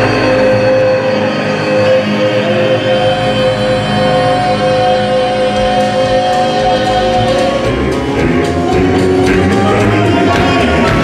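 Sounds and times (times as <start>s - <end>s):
male vocal group singing: 0.0s - 11.0s
instrumental backing: 1.8s - 11.0s
percussive beat: 5.6s - 11.0s.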